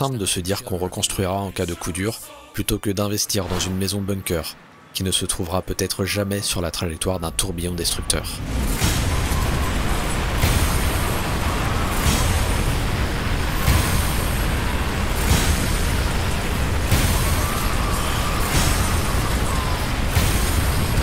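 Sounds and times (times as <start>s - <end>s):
tornado wind gusting: 6.6s - 21.0s
heavy low rumble: 7.4s - 21.0s.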